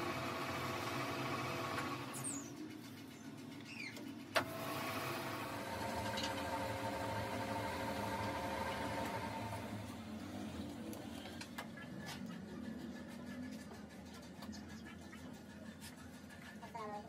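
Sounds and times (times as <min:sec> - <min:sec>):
faint squeaks: 0:03.2 - 0:04.1
lathe motor humming: 0:04.4 - 0:11.0.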